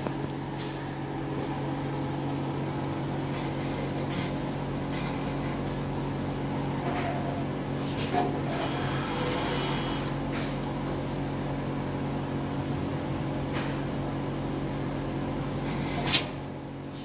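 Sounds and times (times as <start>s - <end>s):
low machine hum: 0.0s - 17.0s.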